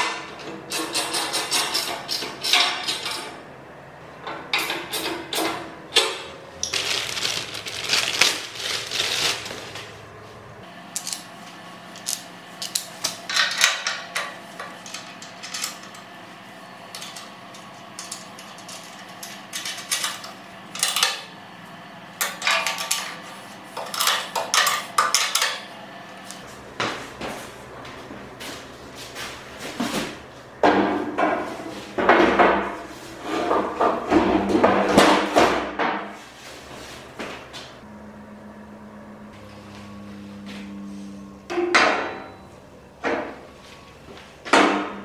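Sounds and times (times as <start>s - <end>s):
metal parts clinking and clattering: 6.6s - 9.8s, 11.0s - 11.2s, 14.8s - 16.0s.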